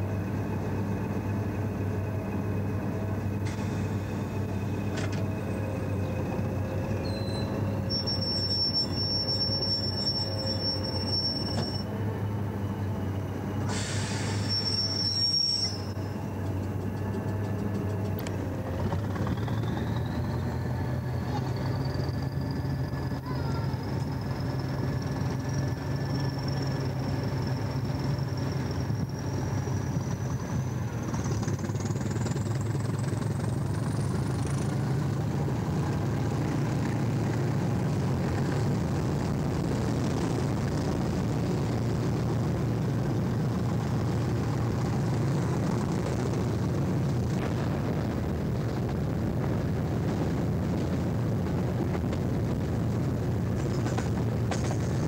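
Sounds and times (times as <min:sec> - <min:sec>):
train diesel engine running: 0:00.0 - 0:55.0
burst of hissing: 0:13.7 - 0:14.6.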